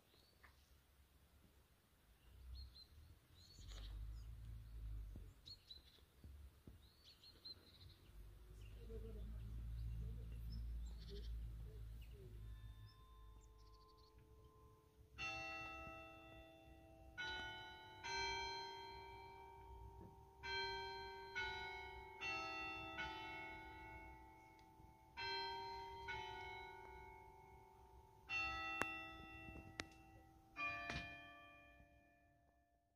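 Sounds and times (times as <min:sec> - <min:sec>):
church bells ringing a tune: 0:08.6 - 0:32.8.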